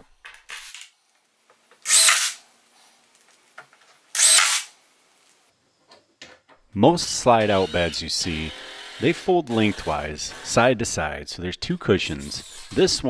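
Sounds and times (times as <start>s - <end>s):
power drill into wood: 1.8s - 2.4s, 4.2s - 4.7s, 7.5s - 10.6s.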